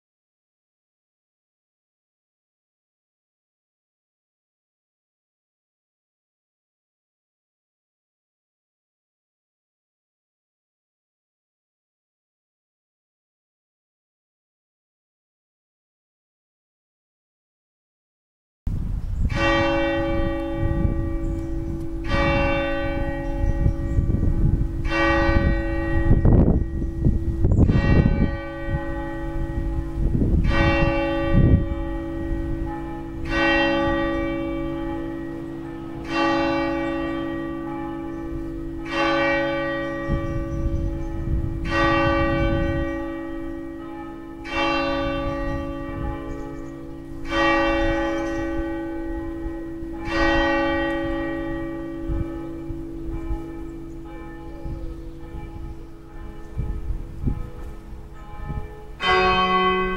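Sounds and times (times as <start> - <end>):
wind rumble on microphone: 18.7 - 59.9
church bells tolling: 19.2 - 59.9.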